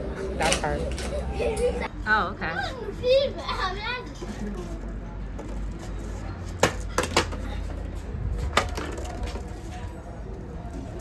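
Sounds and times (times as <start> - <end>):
plastic bottle clattering on stone: 8.5 - 9.5.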